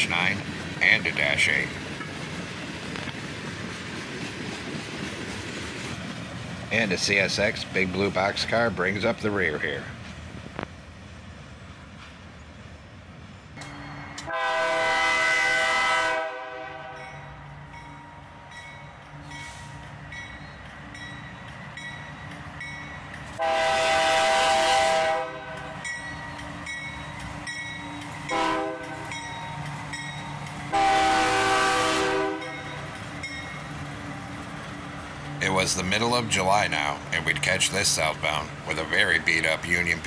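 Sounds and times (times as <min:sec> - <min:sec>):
locomotive air horn blasts: 0:14.2 - 0:17.2, 0:23.4 - 0:25.7, 0:28.3 - 0:29.2, 0:30.7 - 0:32.7.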